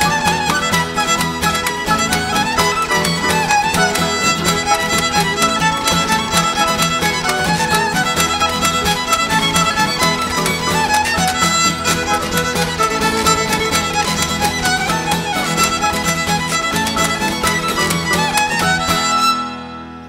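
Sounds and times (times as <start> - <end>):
washboard rhythm: 0.0 - 19.4
fiddle melody: 0.0 - 20.0
strummed acoustic guitars: 0.0 - 20.0.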